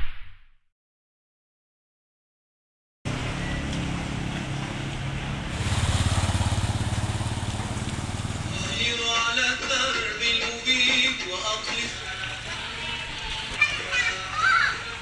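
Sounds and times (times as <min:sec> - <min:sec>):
motorcycle engine running: 0:03.1 - 0:09.6, 0:11.7 - 0:13.6
water sloshing: 0:05.5 - 0:08.8.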